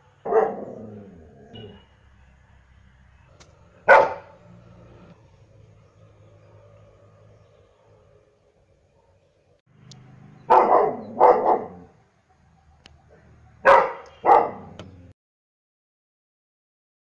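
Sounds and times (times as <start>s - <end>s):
dog barking: 0.2s - 1.8s, 3.8s - 4.5s, 10.4s - 12.0s, 13.6s - 14.8s.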